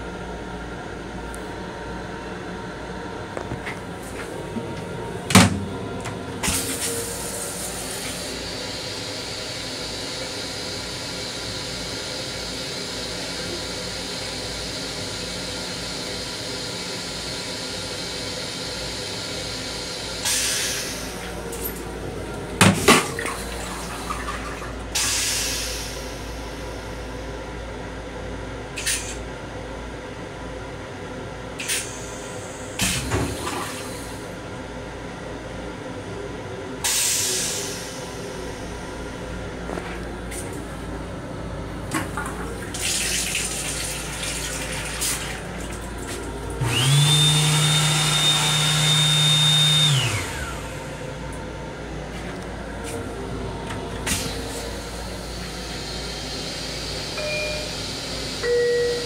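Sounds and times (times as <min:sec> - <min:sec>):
toilet flushing: 0:04.1 - 0:27.0, 0:31.6 - 0:34.4, 0:41.8 - 0:51.0.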